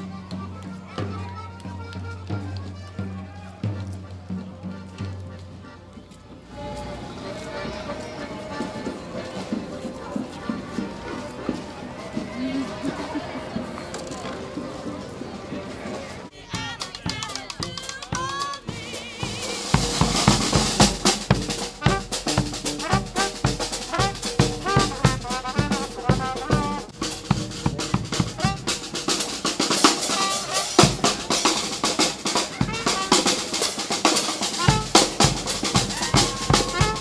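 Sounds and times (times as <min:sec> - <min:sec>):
snare drum beating: 0:16.6 - 0:37.0
brass horns melody: 0:18.8 - 0:37.0.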